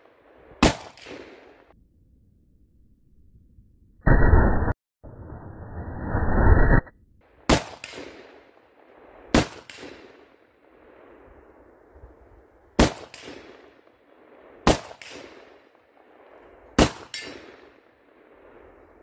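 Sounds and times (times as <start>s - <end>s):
pistol gunshots: 0.6s - 1.7s, 7.4s - 8.6s, 9.3s - 10.4s, 12.8s - 15.8s, 16.7s - 18.0s
gunshot echo off trees: 0.6s - 1.8s, 7.4s - 11.2s, 12.8s - 18.5s.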